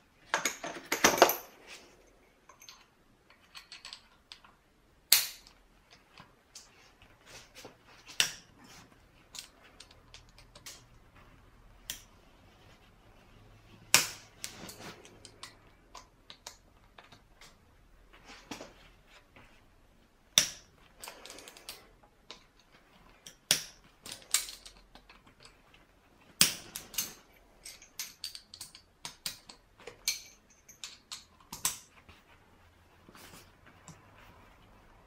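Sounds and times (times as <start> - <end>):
hand tools clicking and tapping: 0.3 - 1.5, 13.9 - 17.6, 26.4 - 32.0.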